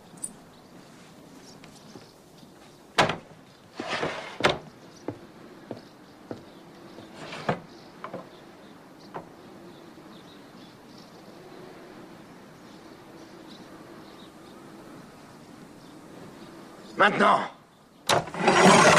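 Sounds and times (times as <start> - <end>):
sharp wooden knocks and clatter: 3.0 - 8.3, 18.1 - 18.9
wooden scraping slide: 3.7 - 4.7, 7.0 - 8.3, 18.1 - 18.9.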